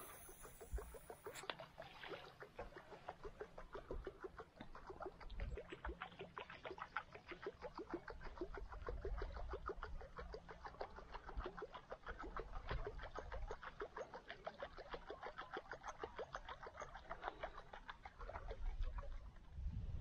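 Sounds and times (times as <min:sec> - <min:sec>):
fishing reel clicking: 0:00.0 - 0:04.3.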